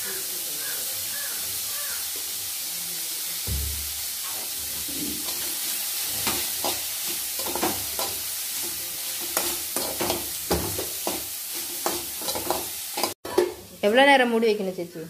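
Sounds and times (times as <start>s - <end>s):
food sizzling: 0.0s - 15.0s
spoon scraping metal pan: 4.9s - 13.5s.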